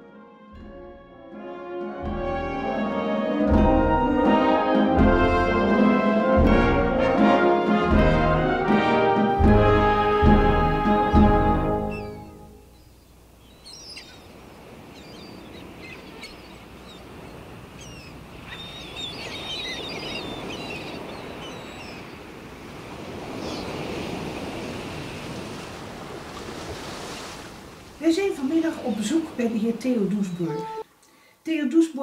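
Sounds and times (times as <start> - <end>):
small birds chirping: 11.9 - 22.3, 23.3 - 23.8, 28.6 - 30.8.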